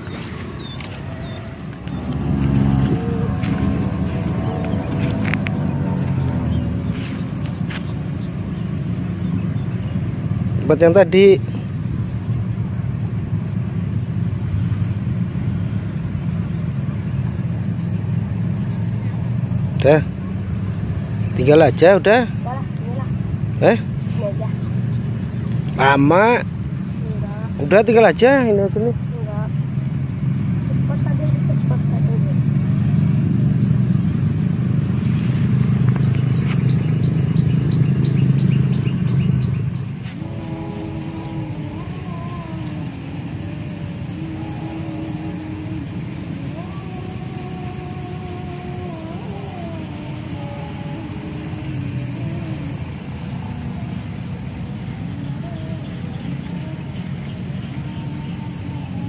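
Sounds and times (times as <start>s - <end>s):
small bird chirping: 0.0s - 3.0s
steady low rumble: 0.0s - 27.7s, 28.7s - 59.0s.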